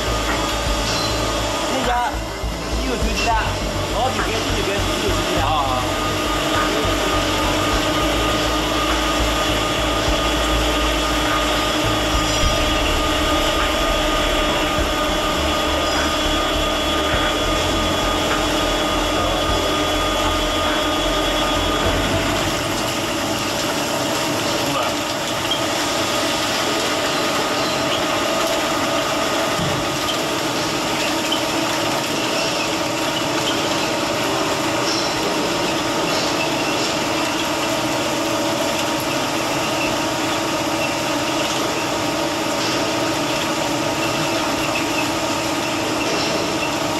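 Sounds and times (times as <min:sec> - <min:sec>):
deep rumble: 0:00.0 - 0:24.3
drilling machine hum: 0:00.0 - 0:46.9.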